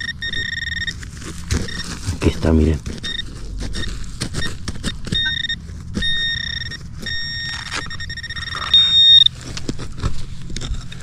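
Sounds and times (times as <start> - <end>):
metal detector signal tone: 0.0 - 1.0, 1.6 - 2.0, 2.9 - 9.3
footsteps on wood chips: 0.9 - 11.0.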